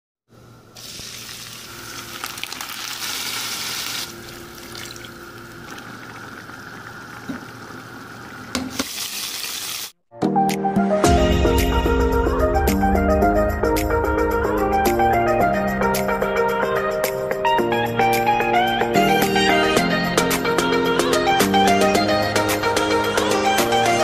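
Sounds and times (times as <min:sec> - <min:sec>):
onion and garlic sizzling in oil: 0:00.8 - 0:04.6, 0:07.9 - 0:10.0.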